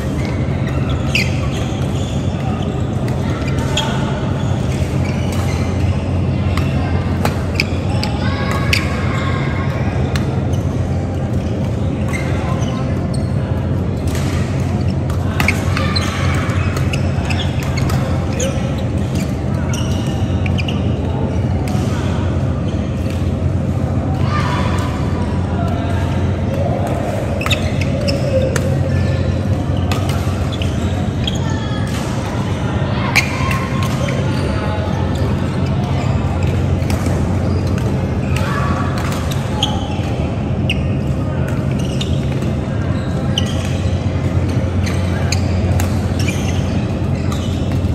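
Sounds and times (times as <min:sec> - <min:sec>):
low hall hum: 0:00.0 - 0:47.9
shoes squeaking on floor: 0:00.2 - 0:06.1, 0:15.7 - 0:20.9, 0:27.4 - 0:28.9, 0:40.6 - 0:41.0, 0:41.6 - 0:42.3, 0:42.9 - 0:44.1, 0:44.8 - 0:47.9.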